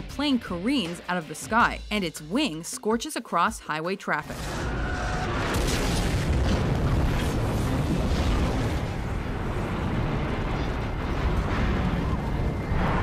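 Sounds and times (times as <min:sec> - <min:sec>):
rumble of explosions and fire: 0:04.2 - 0:13.0
debris cracking: 0:04.4 - 0:13.0.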